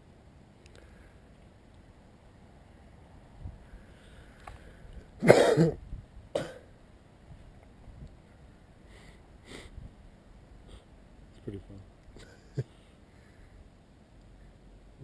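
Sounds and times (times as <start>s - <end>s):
person coughing: 5.2s - 5.8s, 6.4s - 6.7s.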